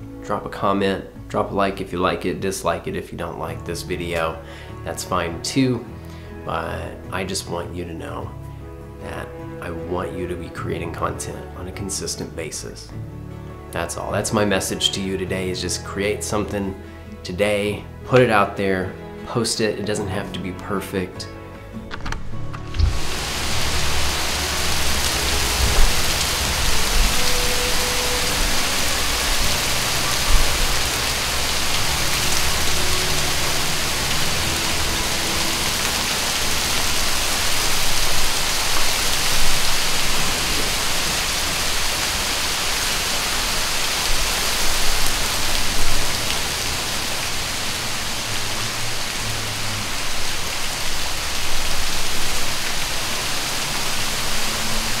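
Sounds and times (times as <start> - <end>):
sleet hissing on concrete and leaves: 22.9 - 55.0.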